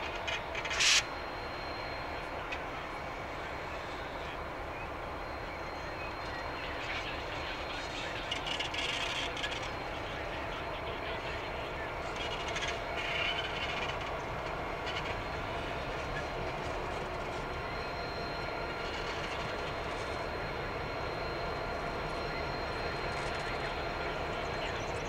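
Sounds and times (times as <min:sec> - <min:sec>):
diesel locomotive engines running: 0:00.0 - 0:25.0
thin high whine: 0:00.0 - 0:25.0.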